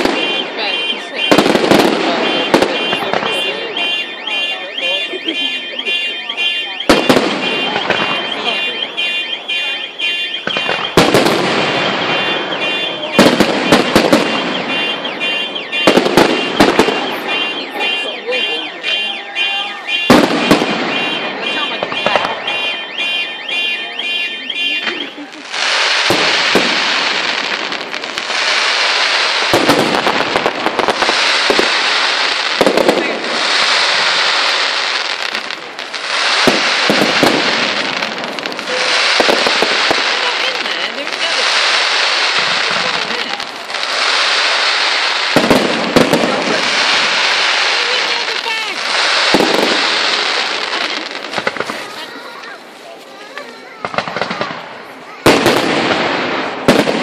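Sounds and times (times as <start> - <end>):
repeating electronic alarm tone: 0.0 - 26.5
rapid firework bangs: 0.0 - 52.8, 53.8 - 57.0
firework crackling: 0.0 - 57.0.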